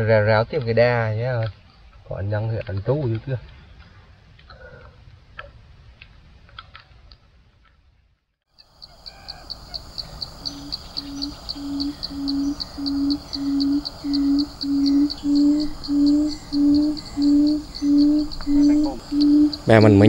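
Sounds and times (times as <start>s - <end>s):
bird low hooting call: 8.6s - 20.0s
insect high ticking: 8.6s - 20.0s.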